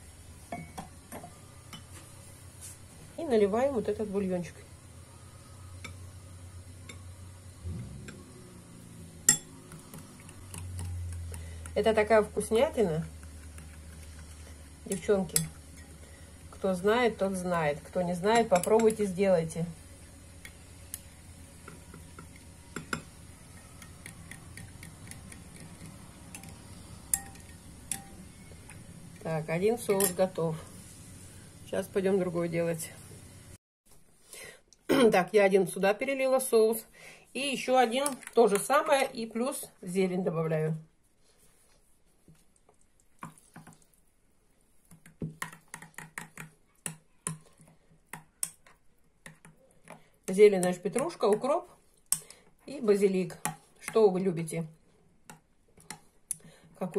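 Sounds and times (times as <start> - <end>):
spoon clinking against glass bowl: 9.3 - 9.5, 26.4 - 28.2.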